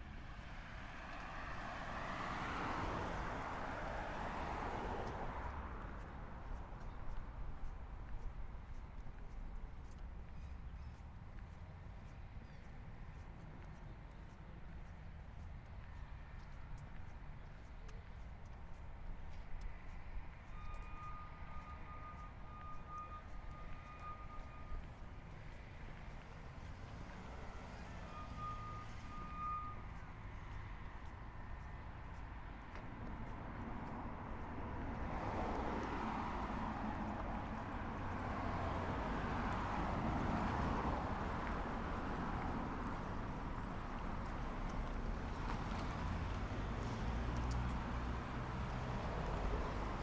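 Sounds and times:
car engine and tyre noise: 0:00.0 - 0:50.0
distant traffic rumble: 0:00.0 - 0:50.0.

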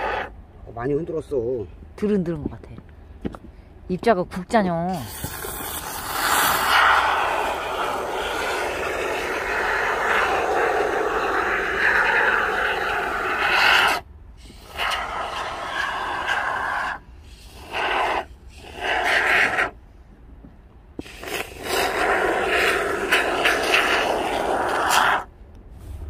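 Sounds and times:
aerosol spray can hissing: 0:05.0 - 0:19.8, 0:21.0 - 0:25.3.

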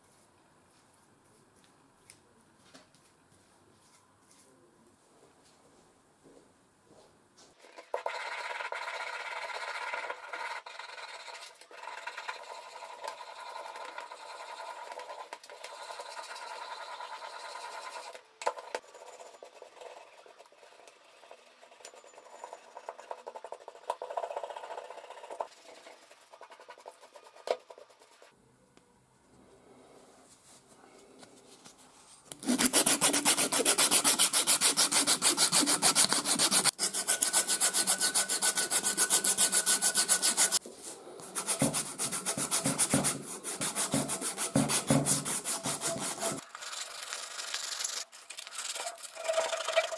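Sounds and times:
plastic brush scrubbing metal parts: 0:32.3 - 0:40.6, 0:41.2 - 0:49.9
sandpaper sanding wooden handle: 0:32.4 - 0:40.6, 0:41.2 - 0:46.4.

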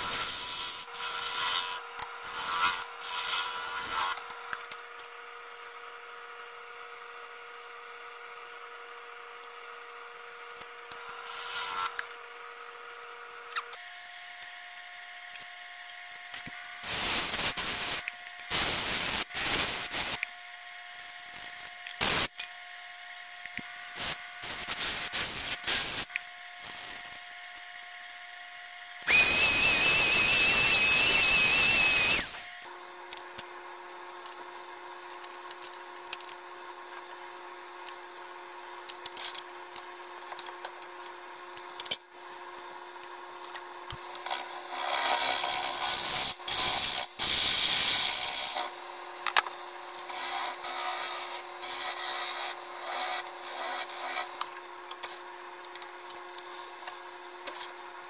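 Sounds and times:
sandpaper on spinning wood: 0:00.0 - 0:04.2, 0:24.0 - 0:26.1, 0:29.1 - 0:32.6
loud even hiss: 0:16.8 - 0:20.2, 0:22.0 - 0:22.3, 0:24.0 - 0:27.0
turning tool cutting wood: 0:29.0 - 0:32.6, 0:44.3 - 0:48.7
wood lathe motor hum: 0:29.0 - 0:32.6.

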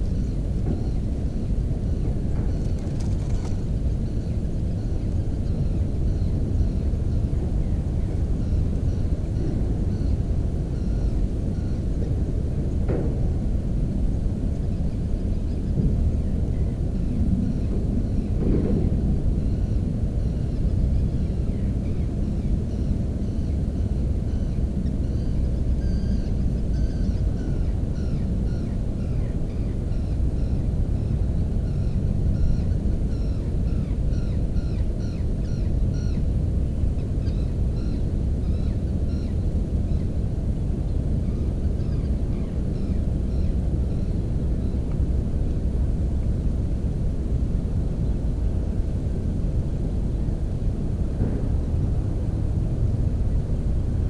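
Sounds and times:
steady low rumble: 0:00.0 - 0:54.0.

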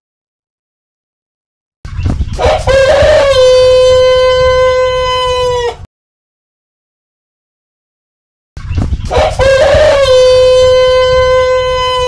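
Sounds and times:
rooster crowing: 0:02.4 - 0:05.9, 0:09.1 - 0:12.0.

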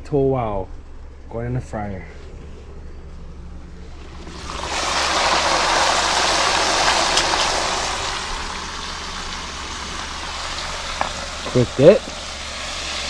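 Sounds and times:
fish sizzling in hot oil: 0:04.2 - 0:13.0.

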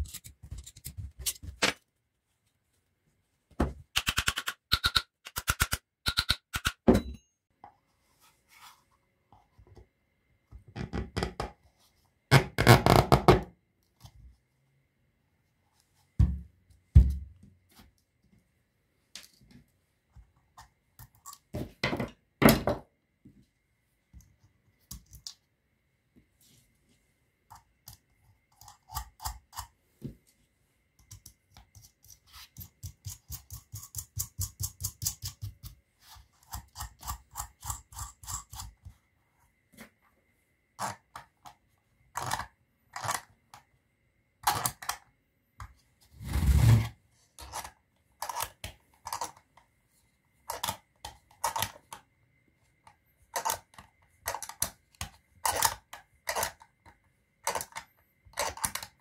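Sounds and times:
metal and plastic parts clicking: 0:40.8 - 0:43.6, 0:47.4 - 0:49.6, 0:50.4 - 0:52.0, 0:52.8 - 0:59.0.

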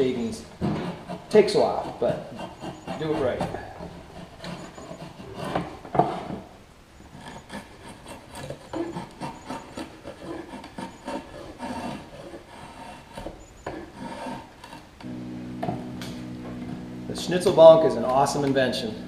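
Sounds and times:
drawknife scraping wood: 0:00.0 - 0:06.5, 0:07.1 - 0:15.1.

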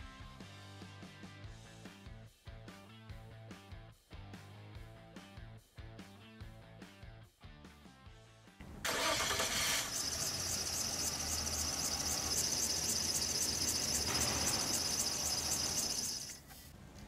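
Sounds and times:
car engine starting and running: 0:08.8 - 0:16.4
belt squeal chirping: 0:09.0 - 0:16.5.

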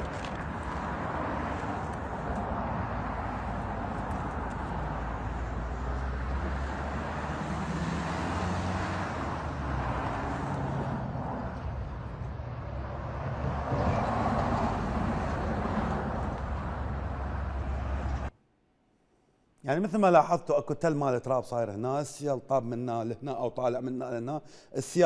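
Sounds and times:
highway traffic rumble: 0:00.0 - 0:18.4.

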